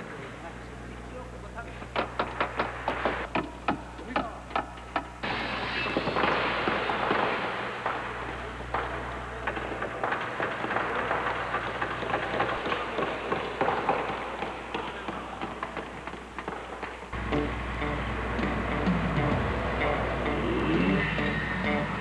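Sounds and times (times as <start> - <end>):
dense crackling noise: 5.2 - 22.0.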